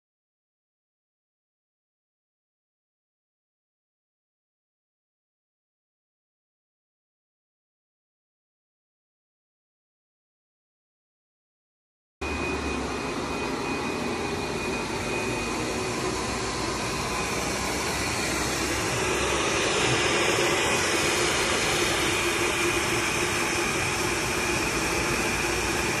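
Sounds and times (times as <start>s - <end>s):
faint steady whine: 12.2s - 26.0s.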